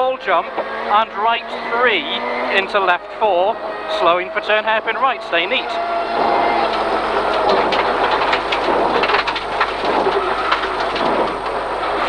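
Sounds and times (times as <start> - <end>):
car engine running: 0.0 - 12.0
gravel spraying against car underbody: 5.4 - 12.0.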